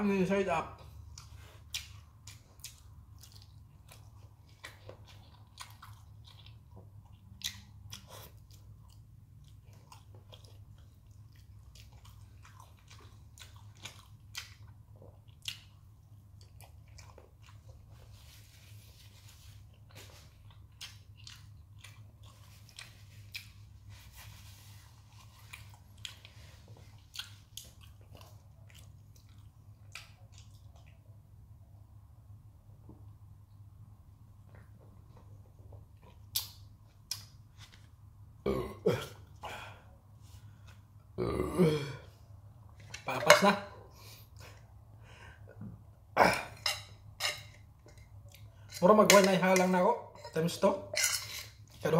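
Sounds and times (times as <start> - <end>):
man chewing: 0.8 - 31.3, 34.4 - 38.2, 43.9 - 48.9.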